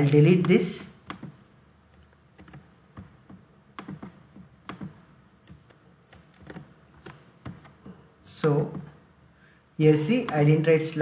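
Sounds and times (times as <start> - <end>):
mouse and keyboard clicks: 0.4 - 7.8.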